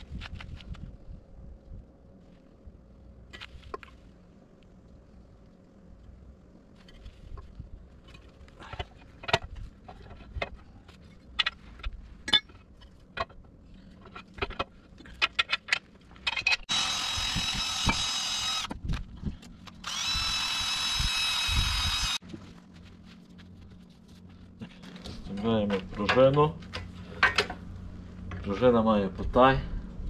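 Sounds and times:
power tool motor running: 16.7s - 18.7s, 19.8s - 22.2s.

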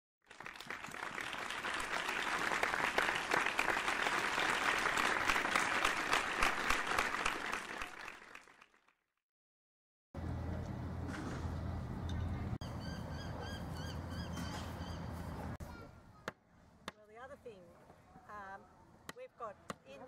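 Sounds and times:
crowd applauding: 0.2s - 9.0s.

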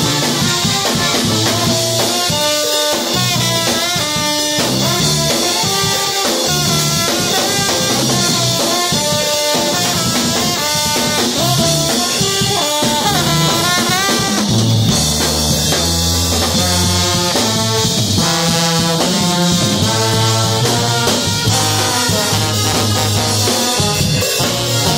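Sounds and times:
low bass notes: 0.0s - 2.2s, 6.5s - 8.9s, 9.7s - 24.9s
brass band playing: 0.0s - 24.9s.

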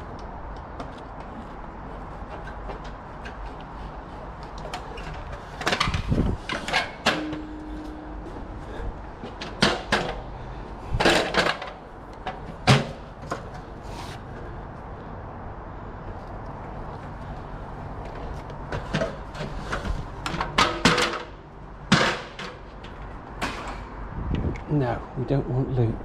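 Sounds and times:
cable scraping and rustling: 0.0s - 9.8s, 13.1s - 14.6s, 16.1s - 20.6s.

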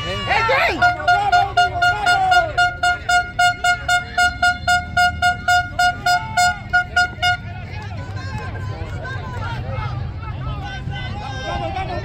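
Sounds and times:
horn tooting in rapid pulses: 0.0s - 7.8s
faint voices: 0.0s - 12.0s.

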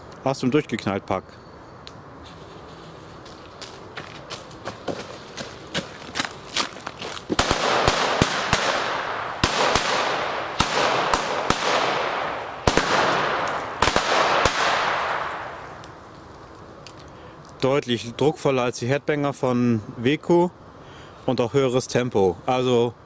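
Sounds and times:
firecrackers banging: 7.2s - 16.4s.

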